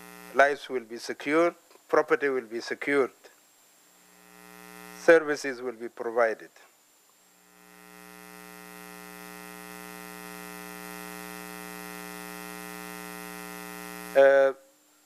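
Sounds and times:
electrical mains hum: 0.0 - 15.0
man talking: 0.3 - 3.3, 5.0 - 6.6, 14.2 - 14.6.

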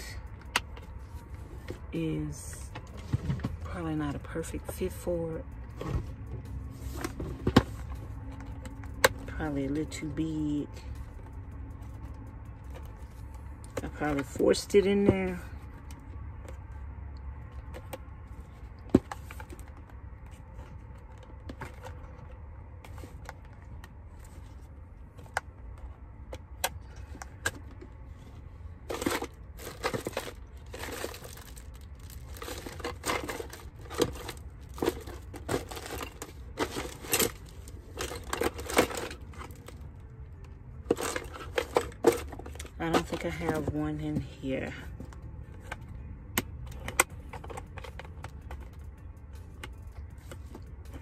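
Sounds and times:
low steady hum: 0.0 - 51.0
rustling and crinkling bags: 26.8 - 45.9.

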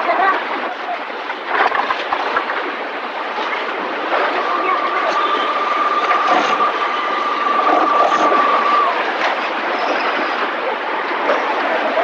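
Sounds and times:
steady high whine: 2.7 - 10.8.

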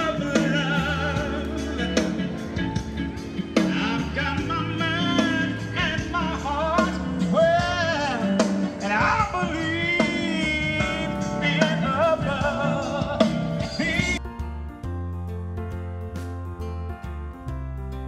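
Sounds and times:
rock song with singer: 0.0 - 14.4.

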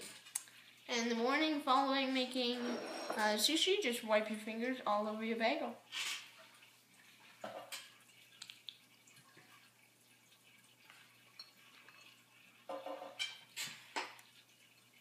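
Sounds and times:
faint utensil clicks and taps: 0.0 - 0.6, 6.4 - 14.8.

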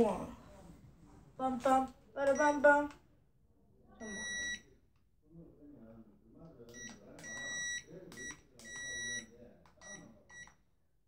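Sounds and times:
remote controller beeps: 4.0 - 4.7, 6.7 - 10.6.

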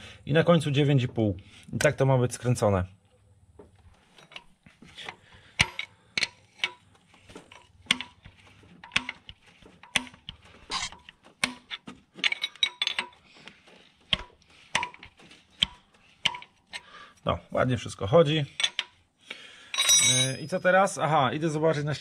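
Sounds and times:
metallic clicks of hand tools: 4.1 - 16.9, 18.6 - 19.0.

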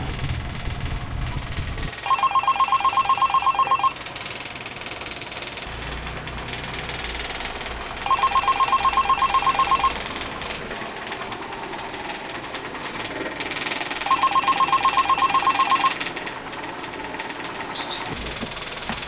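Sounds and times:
phone ringing with bell ringtone: 2.0 - 4.0, 8.0 - 10.0, 14.0 - 16.0.

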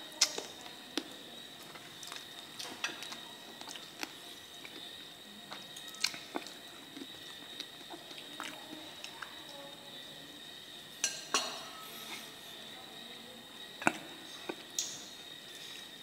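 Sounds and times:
dishes and utensils clinking: 11.0 - 12.3.

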